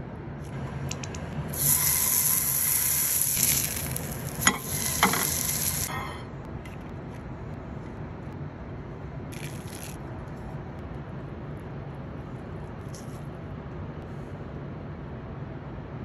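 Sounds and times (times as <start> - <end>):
food sizzling in hot oil: 1.5 - 6.0.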